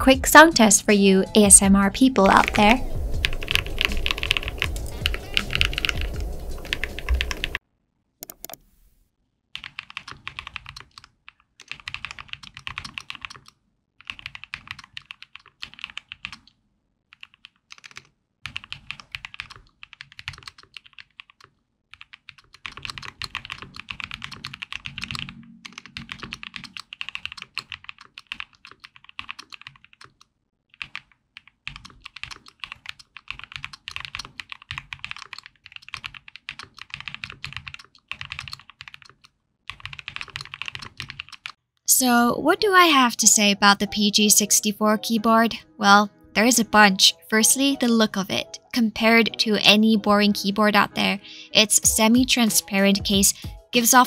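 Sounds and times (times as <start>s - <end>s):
mechanical keyboard typing: 0.3s - 7.6s, 8.2s - 8.7s, 9.6s - 41.6s.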